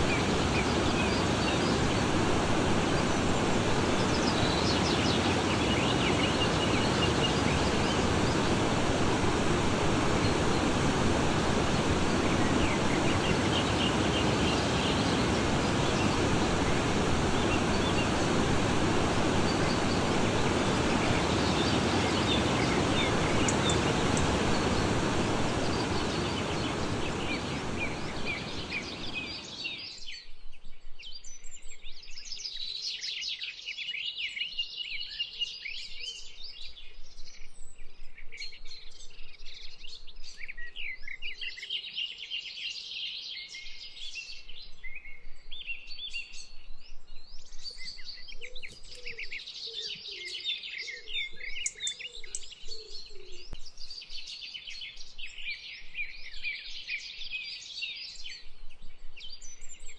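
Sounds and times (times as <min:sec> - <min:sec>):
broad rushing noise: 0:00.0 - 0:29.8
songbirds chirping and trilling: 0:00.0 - 0:59.9.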